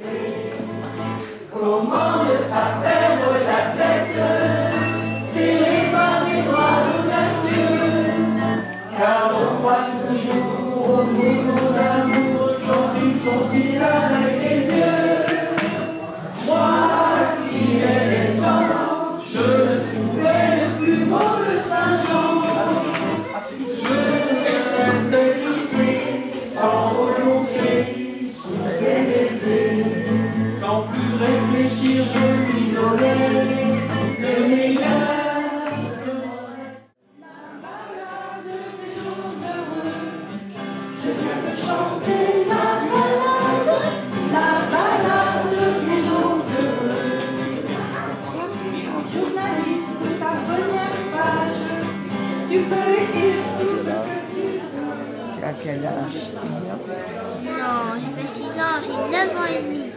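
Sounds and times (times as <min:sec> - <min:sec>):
group singing: 0:00.0 - 0:57.0
acoustic guitar: 0:00.0 - 0:59.9.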